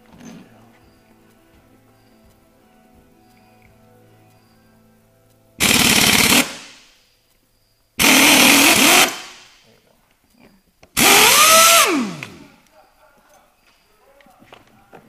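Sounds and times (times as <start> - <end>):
pneumatic impact wrench hammering: 5.6 - 6.9, 8.0 - 9.5, 11.0 - 12.5.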